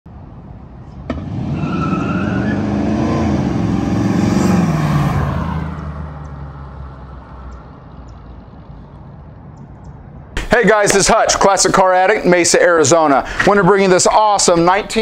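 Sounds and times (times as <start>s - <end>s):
car engine driving past: 0.8s - 9.4s.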